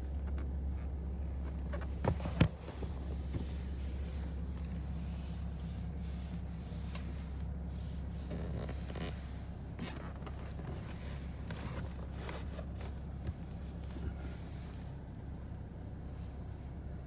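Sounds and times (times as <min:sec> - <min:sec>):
handling rustles and clicks: 0:00.0 - 0:05.5, 0:08.2 - 0:14.4
car engine idling: 0:00.0 - 0:17.0.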